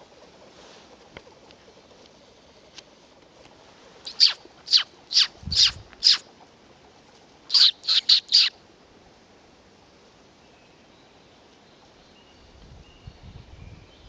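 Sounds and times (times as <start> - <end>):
high downward-sweeping calls: 4.1 - 6.3, 7.5 - 8.6.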